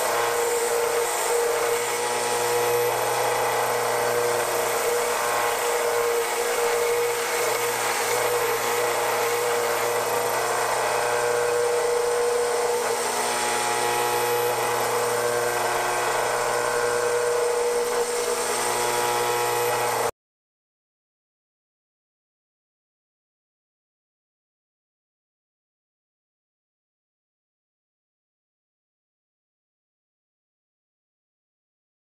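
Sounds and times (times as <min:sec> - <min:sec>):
belt sander running: 0:00.0 - 0:20.1.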